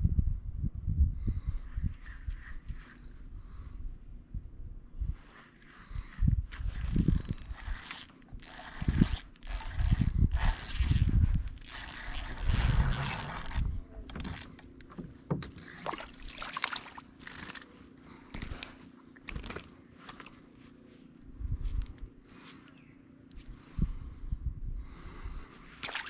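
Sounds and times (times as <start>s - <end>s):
fishing reel whirring and clicking: 6.5s - 14.9s, 17.1s - 17.7s.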